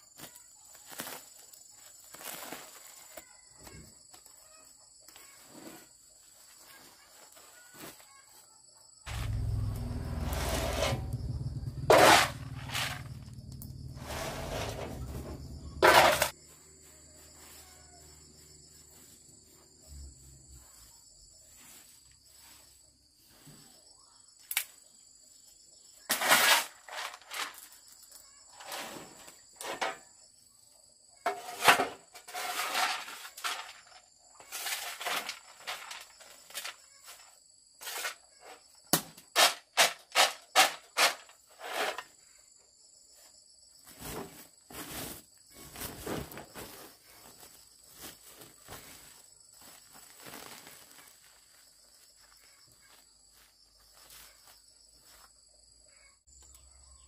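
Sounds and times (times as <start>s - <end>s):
insects trilling: 0.0s - 39.0s, 40.4s - 57.0s
rustling: 43.8s - 55.2s.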